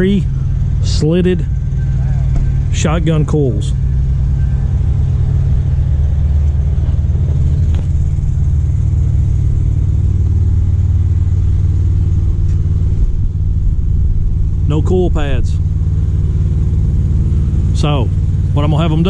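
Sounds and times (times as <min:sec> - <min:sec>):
diesel truck engine idling: 0:00.0 - 0:19.0.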